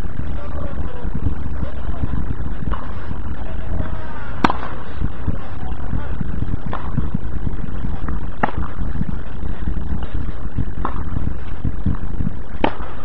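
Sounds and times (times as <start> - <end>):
low rumble: 0.0 - 13.0
tennis racket hitting ball: 4.4 - 4.8, 8.4 - 8.7, 12.6 - 12.9.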